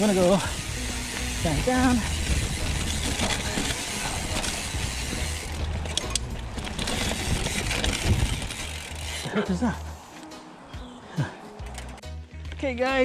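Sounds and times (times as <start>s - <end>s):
bike rattling: 0.0s - 10.2s, 11.2s - 12.1s
tyres running over dirt: 0.0s - 10.3s.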